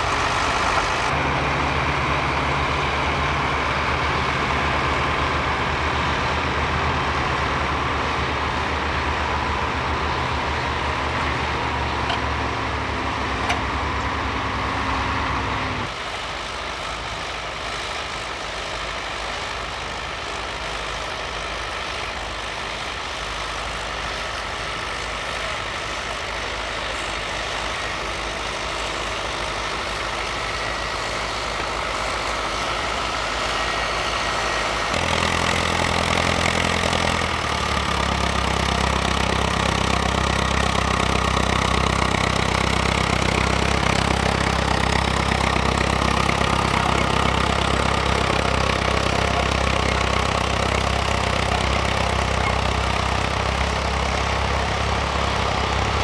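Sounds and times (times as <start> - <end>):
distant tractor engine: 0.0 - 56.0
tractor engine under load: 0.0 - 56.0.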